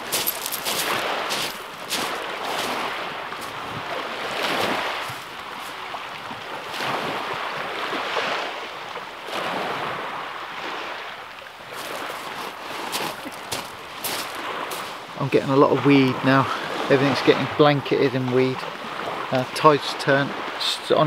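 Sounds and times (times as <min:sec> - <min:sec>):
waves breaking on shingle: 0:00.0 - 0:08.4, 0:11.7 - 0:15.1.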